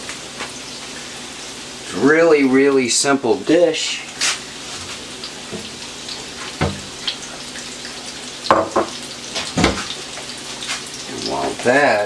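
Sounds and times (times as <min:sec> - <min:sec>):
fish sizzling in oil: 0:00.0 - 0:12.0
loud knocks: 0:06.6 - 0:06.9.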